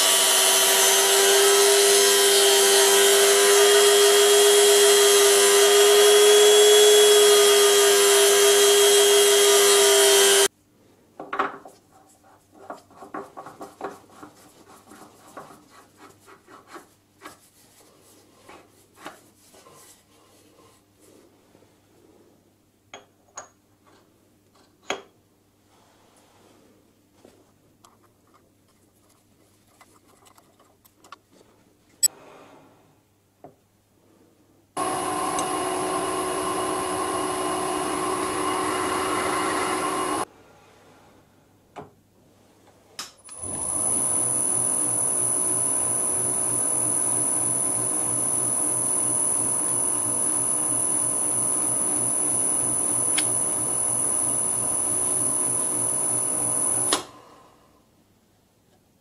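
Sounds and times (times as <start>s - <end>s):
metal lathe running with whine: 43.4s - 56.9s.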